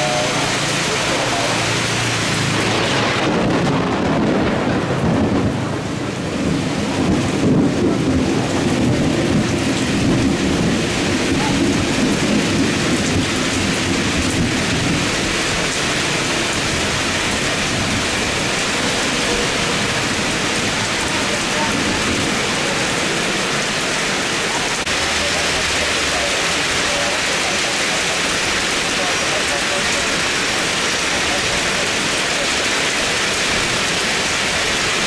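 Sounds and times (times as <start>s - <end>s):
jet engines rumbling: 0.0s - 34.6s
heavy rain: 0.0s - 35.0s
wind noise: 2.2s - 23.1s.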